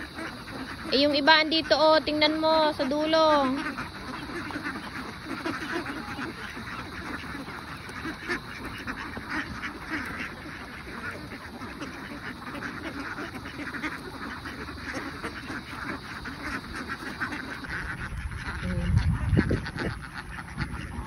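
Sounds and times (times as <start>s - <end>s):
flock of ducks quacking: 0.0s - 21.0s.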